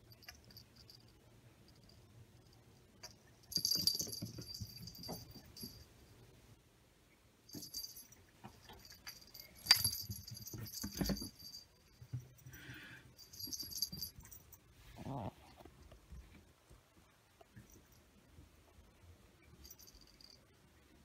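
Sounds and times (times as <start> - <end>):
collar bell jingling: 0.0 - 5.9, 7.5 - 14.6, 19.6 - 20.4.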